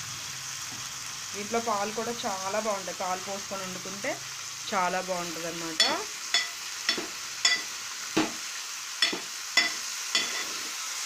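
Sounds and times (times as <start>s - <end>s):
vegetables sizzling: 0.0s - 11.0s
metal ladle clinking on pot: 5.8s - 8.3s, 9.0s - 10.6s.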